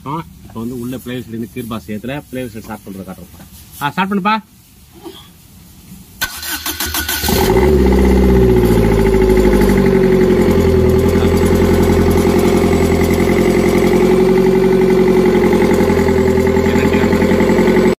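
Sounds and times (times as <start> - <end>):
diesel engine idling: 7.2 - 18.0.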